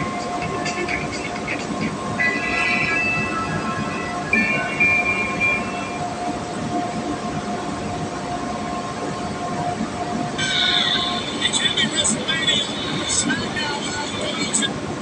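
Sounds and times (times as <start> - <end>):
high whining tone: 0.0 - 14.4
mechanical hum: 0.0 - 15.0.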